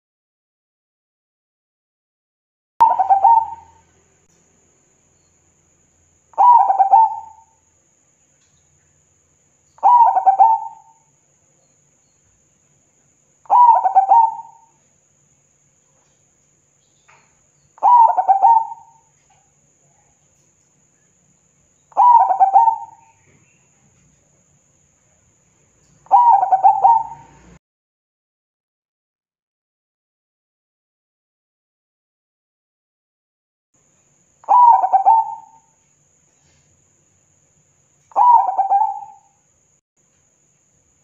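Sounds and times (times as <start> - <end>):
dove cooing: 2.8 - 3.8, 6.4 - 7.5, 9.8 - 11.0, 13.5 - 14.8, 17.8 - 19.1, 21.9 - 23.4, 26.0 - 27.6, 34.5 - 35.6, 38.1 - 39.3.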